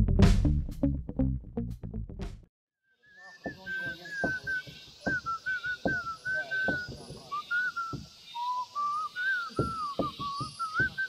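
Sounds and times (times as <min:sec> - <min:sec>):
whistled melody: 0:02.9 - 0:11.0.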